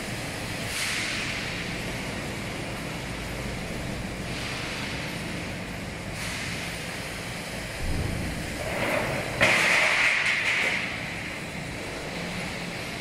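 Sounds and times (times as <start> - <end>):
mechanical din of machinery: 7.7 - 13.0.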